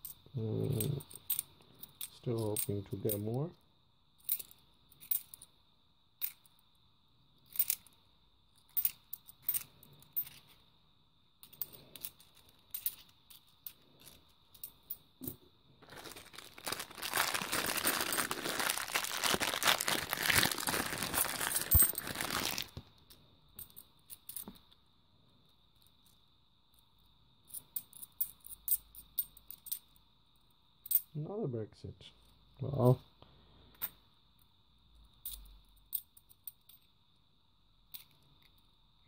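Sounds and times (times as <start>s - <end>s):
coins clicking together: 8.7s - 10.5s
plastic bag crinkling and tearing: 15.8s - 22.8s.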